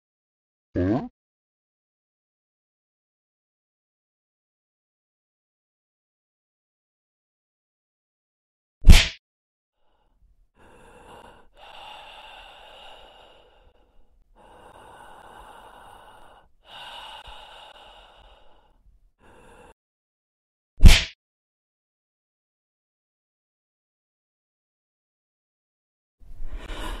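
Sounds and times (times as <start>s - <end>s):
person breathing heavily: 9.8s - 19.8s, 26.3s - 27.0s.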